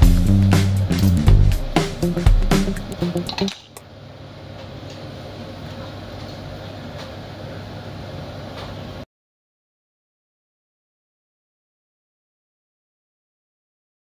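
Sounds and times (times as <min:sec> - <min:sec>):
background music: 0:00.0 - 0:03.6
exhaust fan humming: 0:00.0 - 0:09.0.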